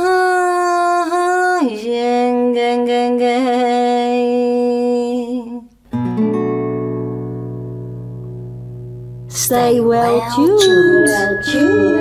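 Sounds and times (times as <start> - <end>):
nylon-string guitar chord ringing: 6.0 - 12.0.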